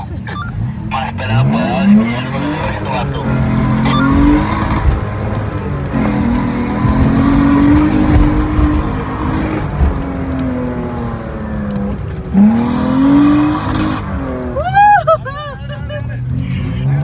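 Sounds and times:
truck engine from inside cab: 0:00.0 - 0:17.0
tyre and wind rumble: 0:02.5 - 0:15.1
quick rising and falling yelps: 0:03.8 - 0:04.6.

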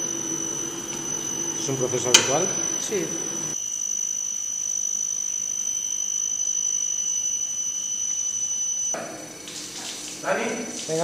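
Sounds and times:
fainter lower tone: 0:00.0 - 0:03.6
high-pitched tone: 0:00.0 - 0:08.9.

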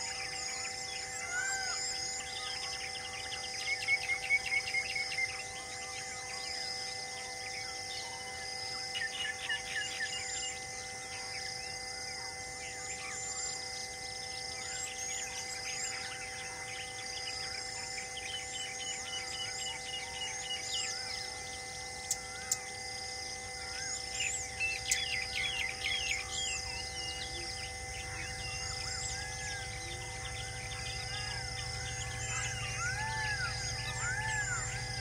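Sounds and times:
steady low hum: 0:00.0 - 0:35.0
small birds chirping: 0:23.3 - 0:35.0.

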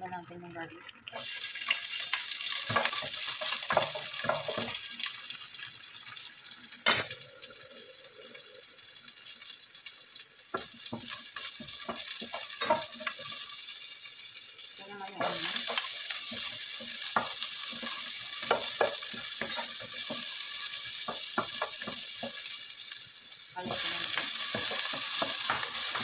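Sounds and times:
garlic sizzling in hot oil: 0:01.0 - 0:26.0
wooden spatula scraping a pot: 0:23.7 - 0:26.0.

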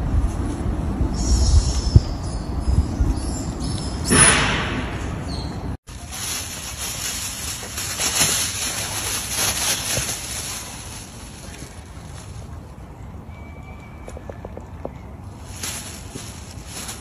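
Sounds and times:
plastic bag rustling and crinkling: 0:05.8 - 0:12.9, 0:15.3 - 0:17.0.

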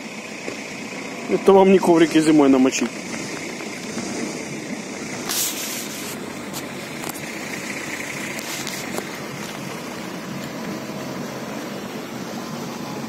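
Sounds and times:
water rushing and churning: 0:00.0 - 0:13.0.

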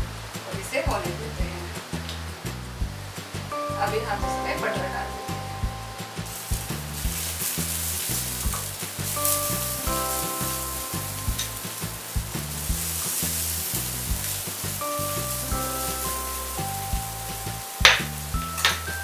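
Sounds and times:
background music with low beat: 0:00.0 - 0:19.0
butter sizzling on hot griddle: 0:06.1 - 0:19.0
spoon spreading on griddle: 0:06.3 - 0:18.9.

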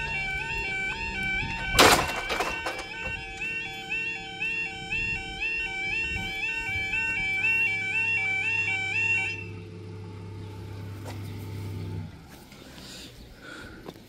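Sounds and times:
two-tone warning alarm: 0:00.0 - 0:10.2
low steady hum: 0:00.0 - 0:14.0.

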